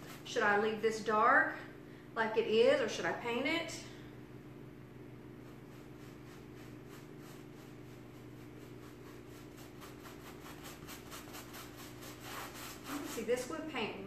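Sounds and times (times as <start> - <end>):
paintbrush scrubbing fabric: 0.0 - 0.3, 5.4 - 13.9
steady low hum: 0.0 - 14.0.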